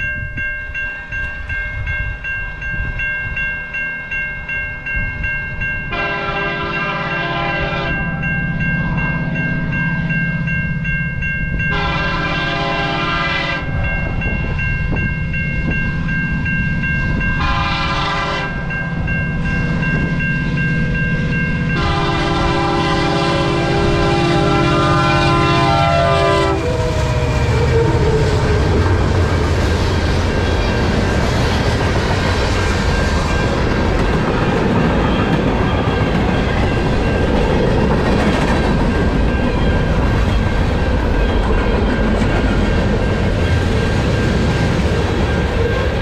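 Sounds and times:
crossing warning bell ringing: 0:00.0 - 0:46.0
train rumble: 0:04.8 - 0:46.0
train horn blasts: 0:05.9 - 0:08.2, 0:11.7 - 0:13.8, 0:17.4 - 0:18.8, 0:21.7 - 0:28.8.

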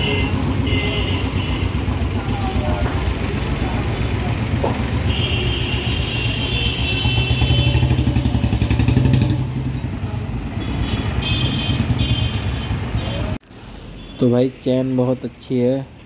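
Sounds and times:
motorcycle engine thumping: 0:00.3 - 0:03.3, 0:04.4 - 0:05.3, 0:06.8 - 0:09.9.

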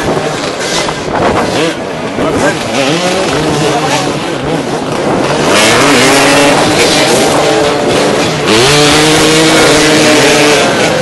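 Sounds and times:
dirt bike engine revving: 0:00.0 - 0:11.0
dirt bike engines running: 0:00.0 - 0:11.0.

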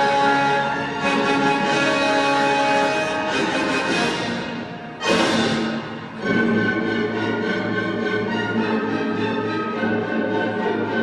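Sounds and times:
backing music: 0:00.0 - 0:11.0.

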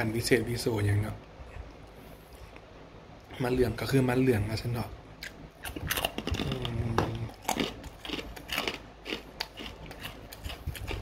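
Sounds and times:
person chewing crispy chip: 0:05.2 - 0:11.0.

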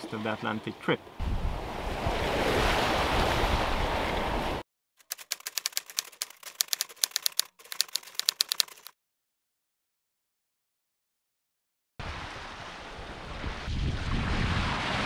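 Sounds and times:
wind and sea noise: 0:00.0 - 0:04.6, 0:12.0 - 0:15.0
typewriter key clicks: 0:05.0 - 0:08.9.

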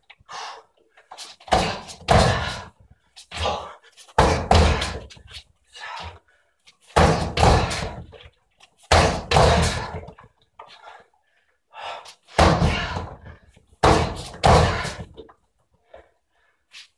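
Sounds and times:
kicks thudding on punching dummy: 0:01.5 - 0:02.7, 0:04.2 - 0:05.1, 0:07.0 - 0:08.1, 0:08.9 - 0:10.1, 0:12.4 - 0:13.2, 0:13.8 - 0:15.2.

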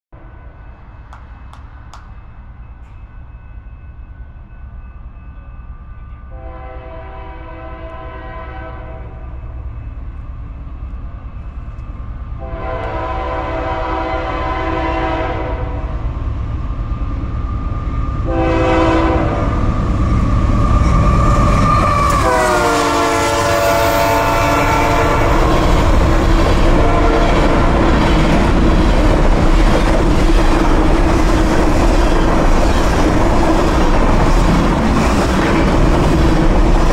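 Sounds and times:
locomotive air horn: 0:06.3 - 0:09.3, 0:12.4 - 0:16.0, 0:18.2 - 0:19.7, 0:21.4 - 0:26.0, 0:26.6 - 0:27.8.

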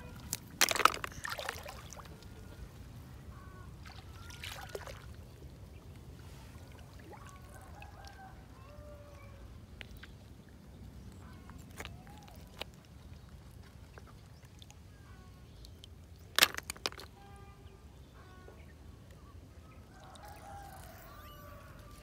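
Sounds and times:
snail shells clattering: 0:00.2 - 0:01.5, 0:16.3 - 0:17.2.

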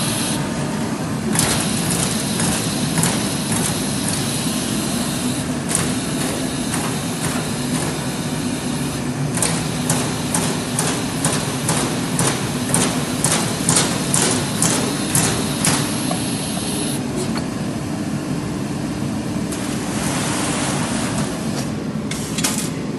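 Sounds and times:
machine humming: 0:00.0 - 0:19.4
punch press strokes on sheet metal: 0:01.4 - 0:17.0.

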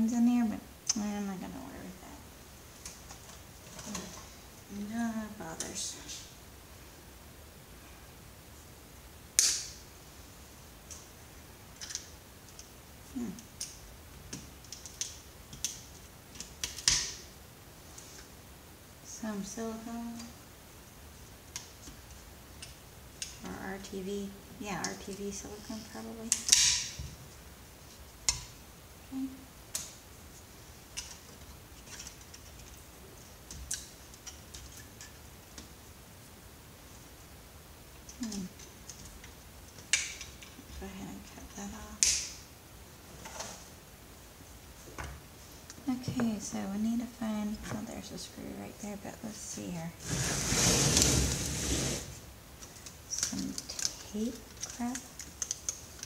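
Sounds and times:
sharp plastic snap: 0:09.4 - 0:09.8, 0:42.0 - 0:42.4
light clicks and taps: 0:52.6 - 0:56.0.

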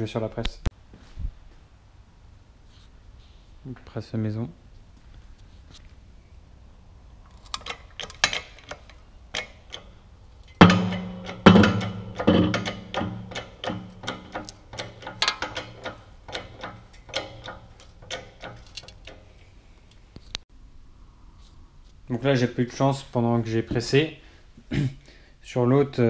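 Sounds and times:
sharp metallic clicks: 0:07.3 - 0:20.4
knocks: 0:10.6 - 0:19.2.

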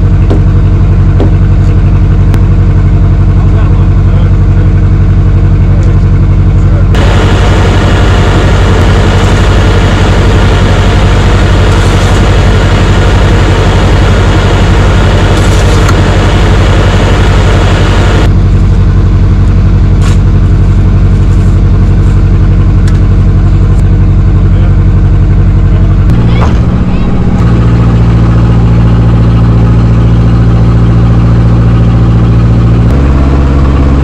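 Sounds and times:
diesel engine running: 0:00.0 - 0:34.0
loud hissing: 0:07.0 - 0:18.3.

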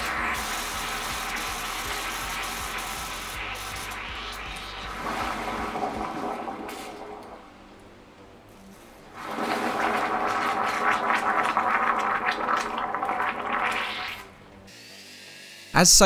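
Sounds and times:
liquid bubbling in a glass bowl: 0:00.0 - 0:07.5, 0:09.2 - 0:14.3.

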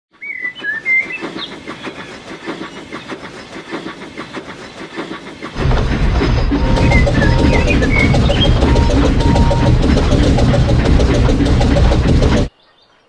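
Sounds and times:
birds chirping: 0:00.1 - 0:13.0
steam train rhythmic chugging: 0:00.2 - 0:12.5
loud low train rumble: 0:00.6 - 0:12.6.

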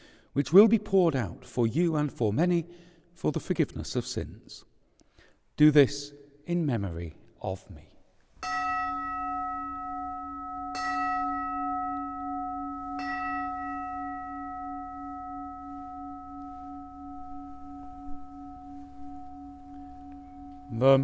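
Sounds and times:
altar bell ringing: 0:08.4 - 0:21.0.

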